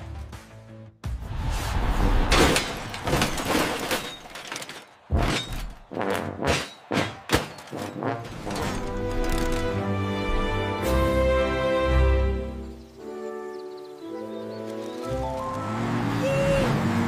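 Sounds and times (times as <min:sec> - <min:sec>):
cartoon scrap metal crash: 0:02.2 - 0:09.5
metal thuds and clanks: 0:02.2 - 0:09.6.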